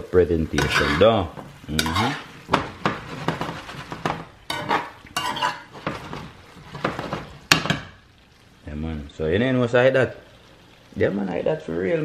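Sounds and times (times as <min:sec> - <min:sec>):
metal spoon scraping a pan: 0:00.5 - 0:08.0.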